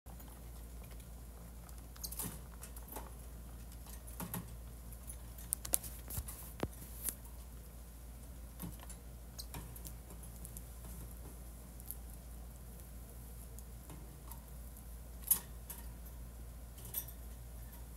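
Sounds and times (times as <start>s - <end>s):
light clicks and taps: 0.1s - 7.3s
low steady hum: 0.1s - 17.9s.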